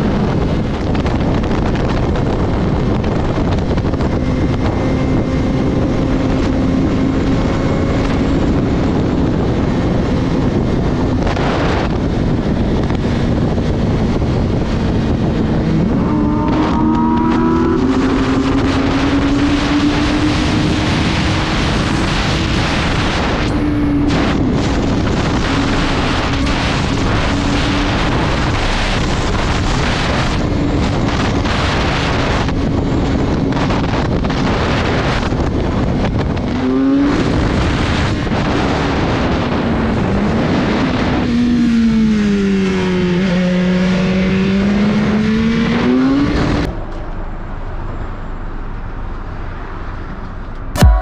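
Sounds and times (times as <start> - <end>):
motorcycle engine running: 0.0 - 36.6
wind rush on microphone: 0.0 - 51.0.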